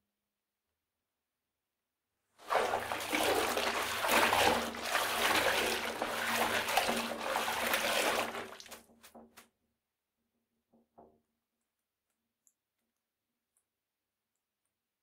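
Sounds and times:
tap water running into bathtub: 0:02.4 - 0:09.4.

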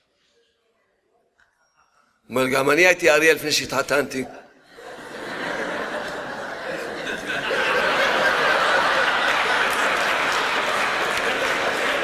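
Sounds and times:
audience laughing: 0:04.7 - 0:12.0.

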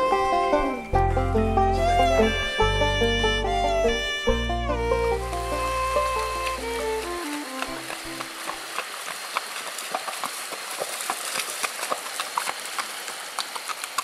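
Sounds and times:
fiddle tune: 0:00.0 - 0:08.6
water rushing: 0:01.8 - 0:14.0
hooves splashing through water: 0:04.0 - 0:14.0.

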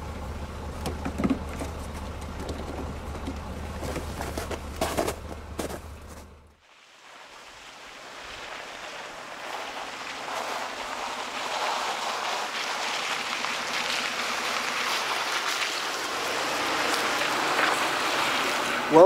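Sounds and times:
car engine running: 0:00.0 - 0:06.6
tyres crunching on gravel: 0:00.1 - 0:06.5, 0:07.1 - 0:19.0.

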